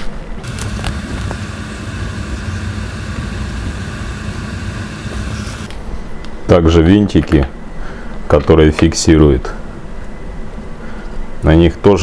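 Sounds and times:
low mechanical drone: 0:00.4 - 0:06.1.

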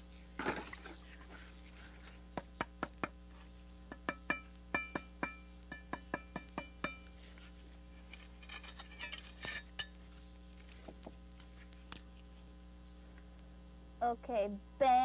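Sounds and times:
steel trowel scraping brick: 0:08.0 - 0:09.8.

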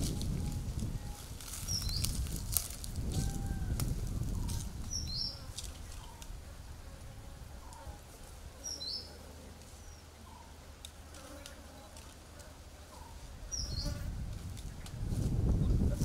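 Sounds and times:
birds chirping: 0:00.0 - 0:02.2, 0:04.3 - 0:06.4, 0:08.6 - 0:10.6, 0:12.8 - 0:15.9.

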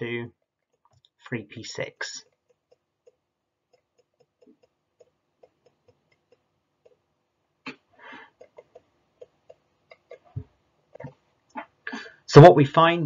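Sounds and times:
stylus tapping on tablet: 0:08.4 - 0:11.2.

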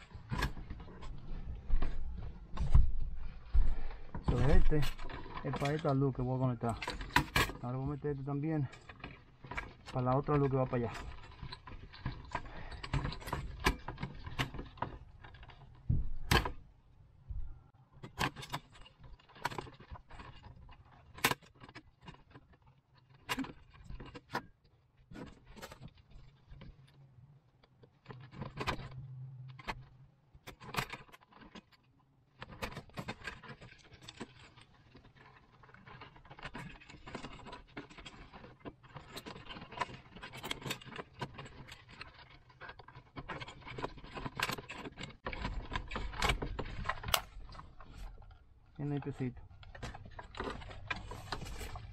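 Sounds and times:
clicks and taps of wiring: 0:03.5 - 0:16.6
metal parts jingling: 0:04.2 - 0:16.4, 0:32.4 - 0:51.9.

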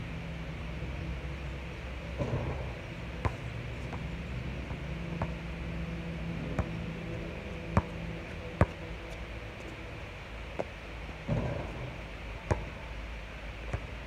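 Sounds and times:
steady low hum: 0:00.0 - 0:14.0
basketball impacts on court and hoop: 0:11.3 - 0:11.9, 0:12.5 - 0:12.7.

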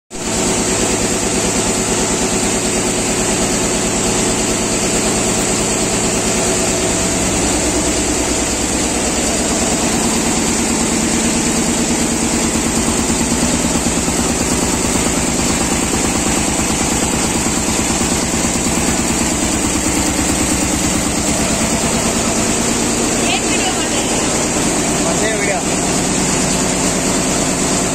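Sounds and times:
quilting machine stitching: 0:00.3 - 0:27.9.

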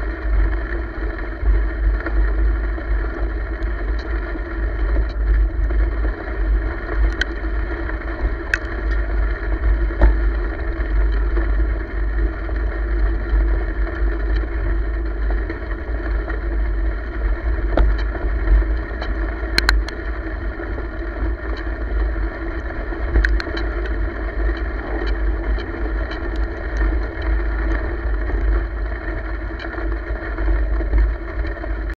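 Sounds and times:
continuous rolling drone: 0:00.0 - 0:32.0
wind buffeting microphone: 0:00.0 - 0:32.0
clicks and rattles from bumps: 0:17.6 - 0:22.0, 0:22.8 - 0:31.9.

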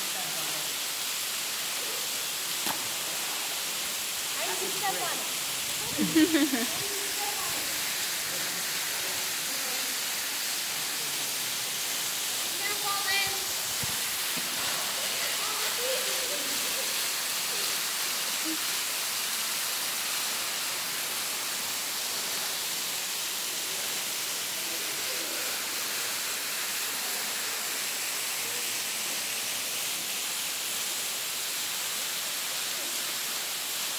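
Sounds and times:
waterfall splashing into pool: 0:00.0 - 0:33.9.

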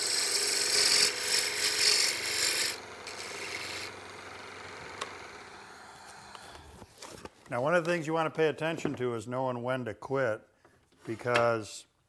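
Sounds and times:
lathe tool cutting wood: 0:00.0 - 0:06.8.

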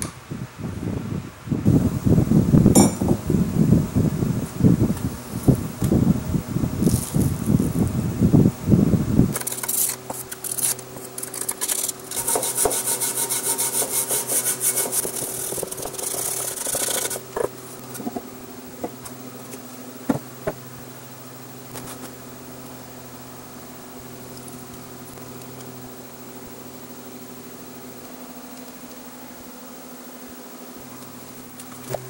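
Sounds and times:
steady low hum: 0:00.2 - 0:32.0
metal scraper rasping paint off metal: 0:09.4 - 0:17.5.

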